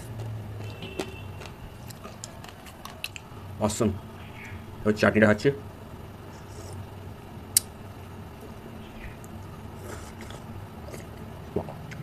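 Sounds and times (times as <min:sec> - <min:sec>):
wet licking and chewing: 0:00.0 - 0:03.3.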